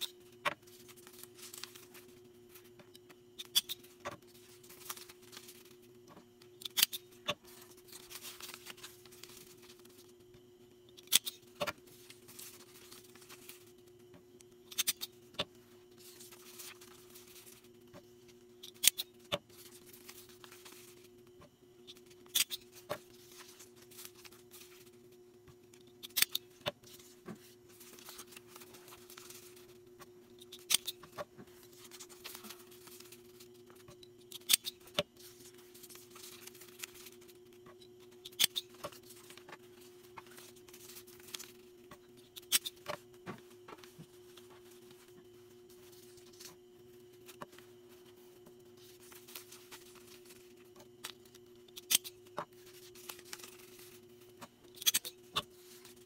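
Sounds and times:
faint steady hum: 0.0 - 56.0
soft handling noise: 19.3 - 56.0.

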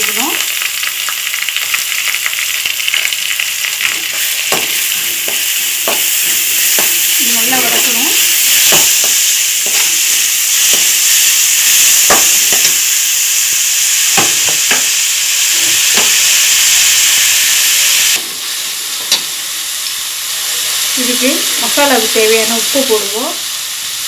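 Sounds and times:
onions sizzling in oil: 0.0 - 24.0
spatula scraping and knocking pan: 3.9 - 12.8.

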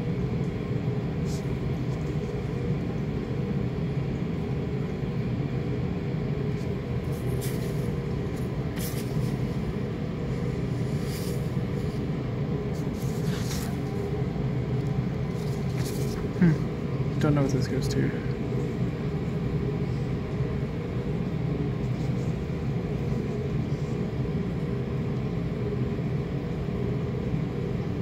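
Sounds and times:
low mechanical hum of machinery: 0.0 - 28.0
paper rustling: 12.9 - 13.8.

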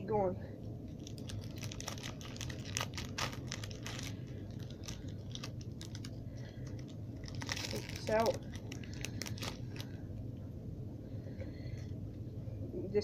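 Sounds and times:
low steady hum: 0.0 - 13.0
foil wrapper crinkling: 0.9 - 10.0.

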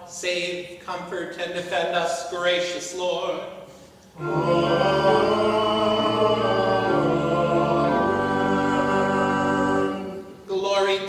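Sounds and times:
voices singing held chords: 4.2 - 10.5.

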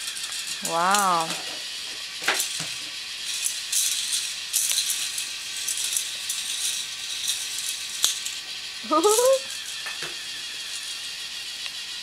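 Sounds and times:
plastic roller coaster rattling: 0.0 - 11.0.

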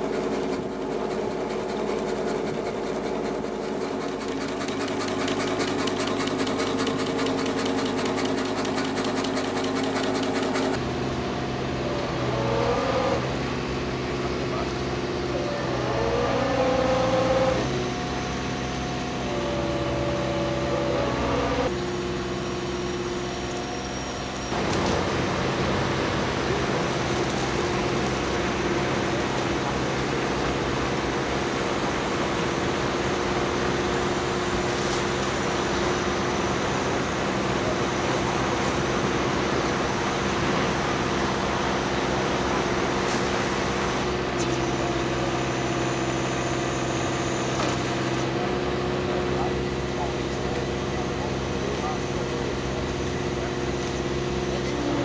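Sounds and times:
boat engine running: 0.0 - 10.8.

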